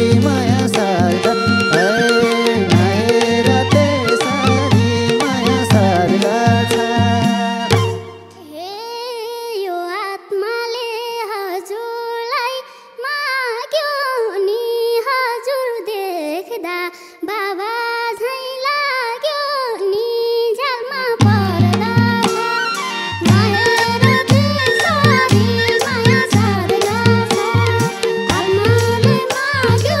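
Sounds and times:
girl singing a folk melody: 8.3 - 22.4, 23.2 - 30.0.

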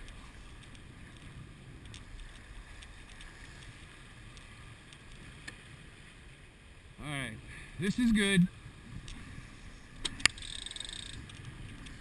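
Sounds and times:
faint clicks: 0.0 - 5.6, 10.0 - 12.0
wind noise on microphone: 7.4 - 12.0.

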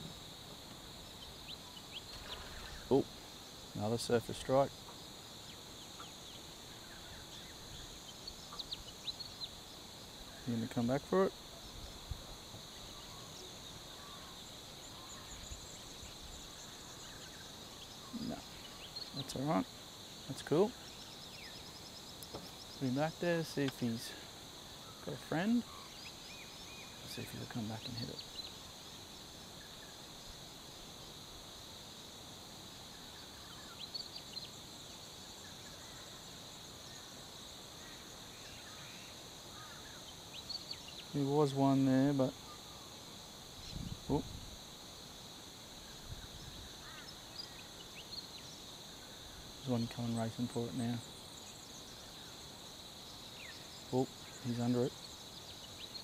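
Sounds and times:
insect chorus drone: 0.0 - 56.0
faint bird chirps: 0.8 - 28.7, 32.9 - 44.4.

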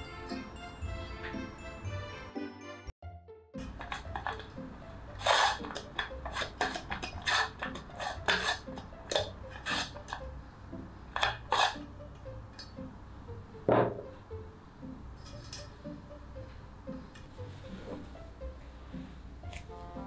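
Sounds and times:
pastry brush scraping metal pan: 5.2 - 10.2, 11.2 - 11.9.

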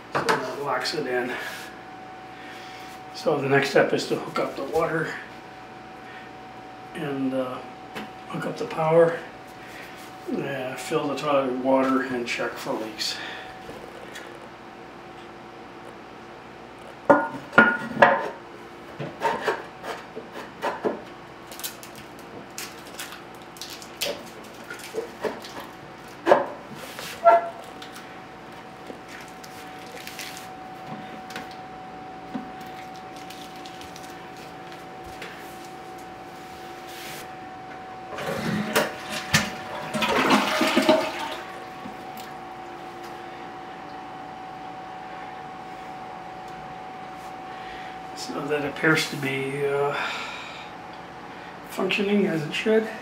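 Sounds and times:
toilet water rushing: 38.2 - 41.8.

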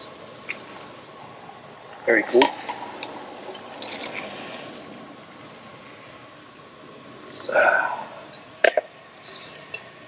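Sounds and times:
sharp clicks: 0.0 - 6.7
crickets chirring: 0.0 - 10.0.

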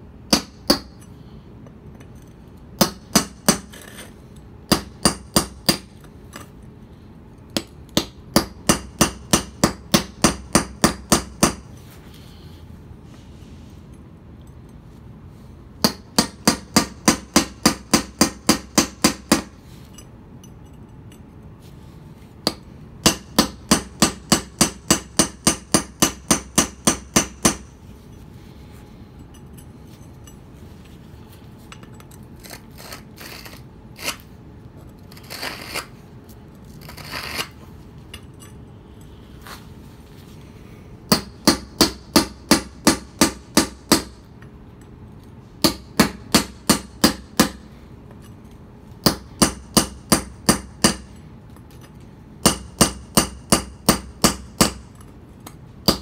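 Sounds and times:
hammer striking chisel on stone: 0.3 - 1.0, 2.8 - 4.0, 4.7 - 6.0, 7.6 - 11.6, 15.8 - 19.6, 22.4 - 27.7, 41.1 - 44.2, 45.6 - 47.6, 49.0 - 51.1, 52.4 - 55.0.

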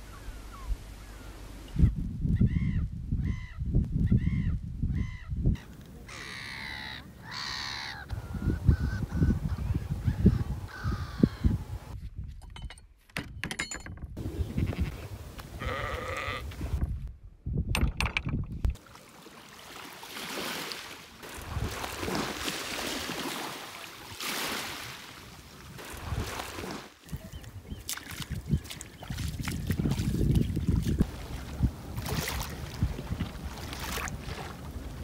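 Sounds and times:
sheep bleating: 15.6 - 16.5
water washing over mudflats: 18.8 - 35.0.

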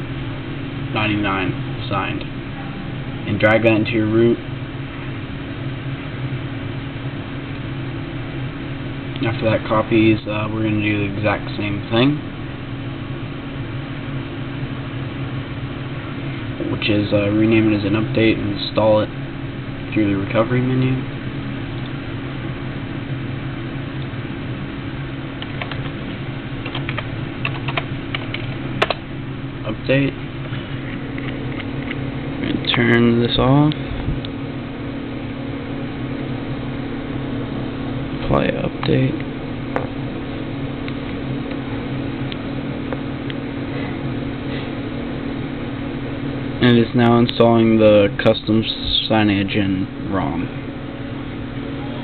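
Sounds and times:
steady low hum: 0.0 - 52.0
keyboard keystrokes: 25.4 - 25.9, 26.6 - 29.0.

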